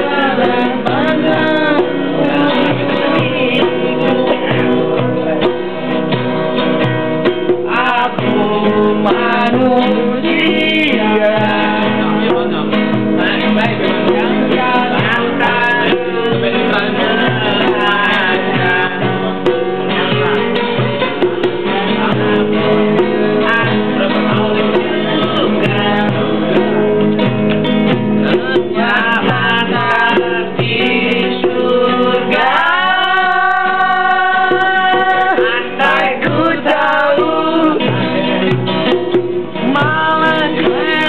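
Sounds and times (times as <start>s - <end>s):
person singing: 0.0s - 5.7s, 7.3s - 27.3s, 28.1s - 41.0s
acoustic guitar: 0.0s - 41.0s.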